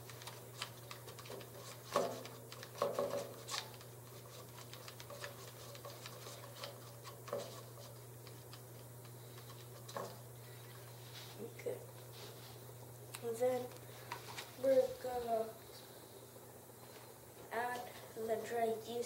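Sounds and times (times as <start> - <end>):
stirrer scraping paper cup: 0.0 - 10.6.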